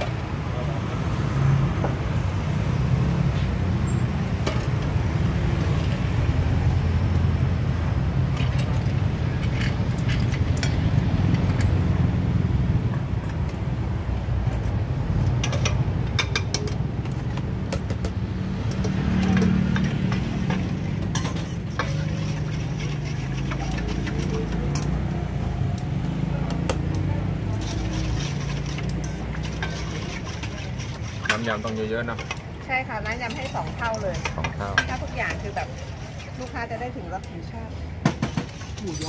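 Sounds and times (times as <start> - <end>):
metal ladle clinking on steel bowls: 8.4 - 11.8, 15.3 - 25.4, 26.4 - 37.4.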